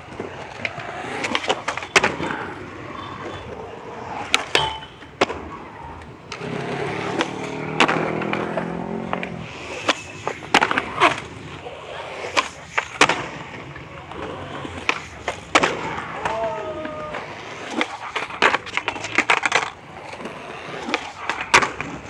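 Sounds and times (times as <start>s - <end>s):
skateboard clacks: 0.0s - 22.0s
skateboards rolling on concrete: 0.0s - 22.0s.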